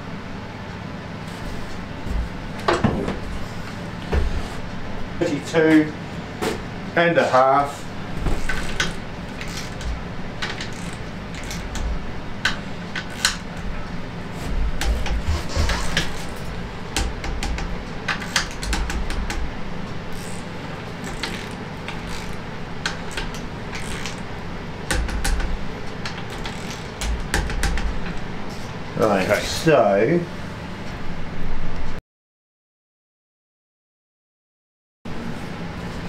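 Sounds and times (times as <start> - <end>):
torque wrench clicking: 8.4 - 11.8, 12.4 - 13.5, 17.0 - 19.5, 20.1 - 24.3, 24.9 - 28.2.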